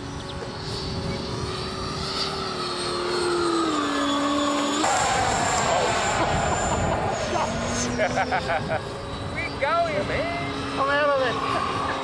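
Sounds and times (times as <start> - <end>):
model plane motor whine: 0.0 - 12.0.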